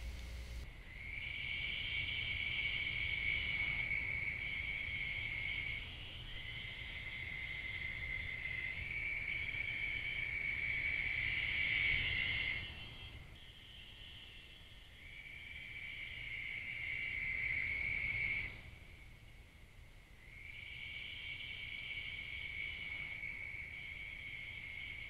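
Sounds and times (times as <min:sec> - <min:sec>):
crickets trilling: 0:20.2 - 0:25.0.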